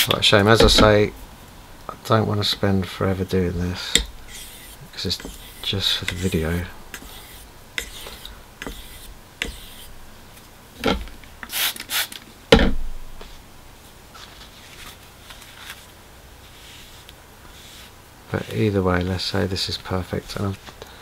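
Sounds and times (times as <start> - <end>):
razor scraping on sharpening stone: 4.0 - 9.9.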